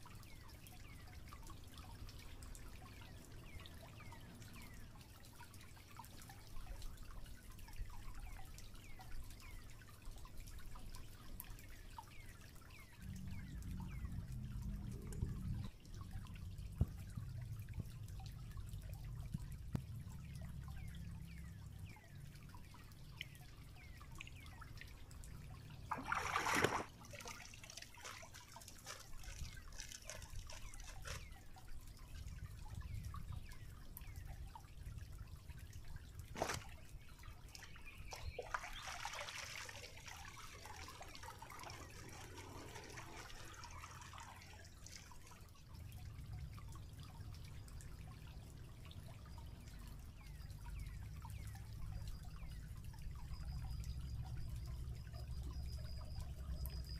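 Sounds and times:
stream water trickling: 0:00.0 - 0:56.9
cloth splashing in water: 0:25.9 - 0:30.0, 0:36.3 - 0:36.9, 0:38.4 - 0:45.1.

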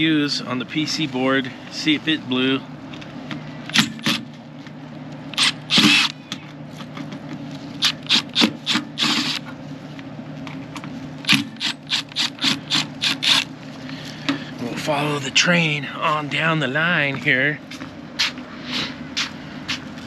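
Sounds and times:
cordless driver unscrewing screws: 0:05.3 - 0:06.2, 0:07.8 - 0:09.4, 0:11.3 - 0:13.5.

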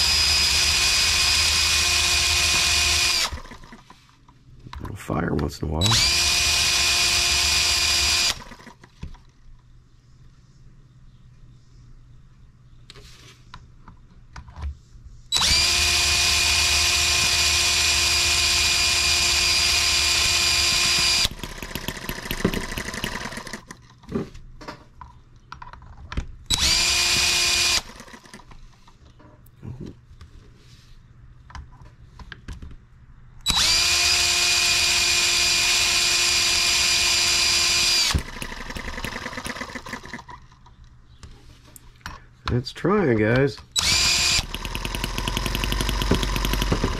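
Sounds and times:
cordless drill whining: 0:00.0 - 0:03.8, 0:05.8 - 0:08.8, 0:15.4 - 0:23.7, 0:26.5 - 0:28.4, 0:33.5 - 0:40.2, 0:43.8 - 0:46.9
model engine firing: 0:15.4 - 0:23.7, 0:35.1 - 0:40.2, 0:43.8 - 0:46.9.

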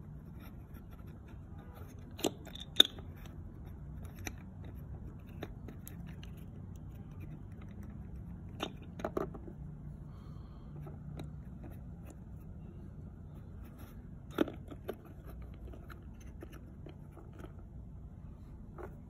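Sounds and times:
faint low hum: 0:00.0 - 0:19.0
plastic toy figures clacking: 0:02.0 - 0:09.6.

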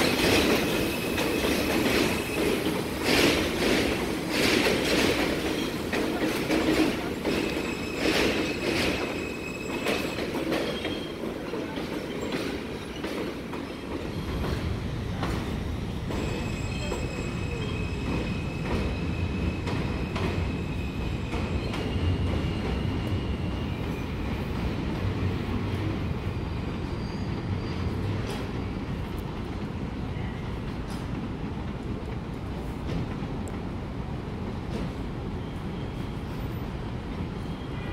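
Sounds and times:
subway train rumble: 0:00.0 - 0:37.9
wheel squeal: 0:07.4 - 0:11.2.

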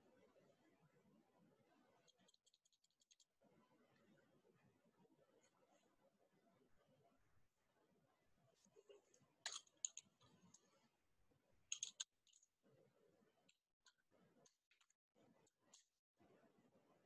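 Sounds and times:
keyboard and mouse clicks: 0:09.5 - 0:10.6, 0:11.7 - 0:12.5.

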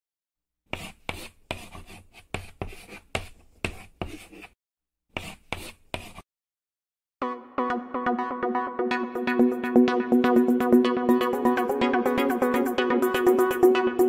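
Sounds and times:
pen scratching across paper: 0:00.7 - 0:04.6, 0:05.2 - 0:06.2.

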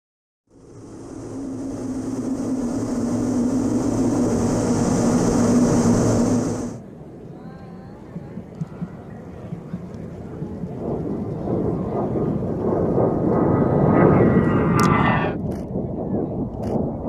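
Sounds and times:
jet engines whining: 0:00.5 - 0:06.8, 0:10.9 - 0:15.5.

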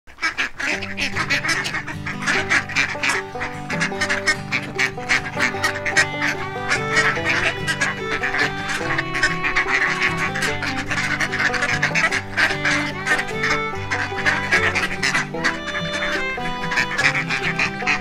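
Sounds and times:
ducks quacking: 0:00.1 - 0:18.0
geese honking: 0:00.1 - 0:18.0
background music with held notes: 0:00.6 - 0:18.0.

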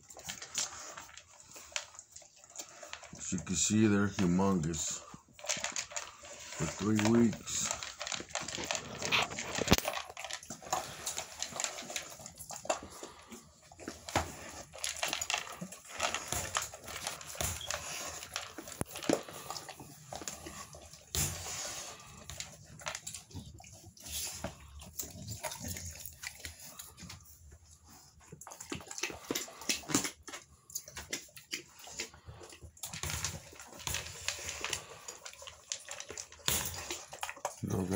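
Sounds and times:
clicks and scuffling in wire crate: 0:06.6 - 0:11.2.

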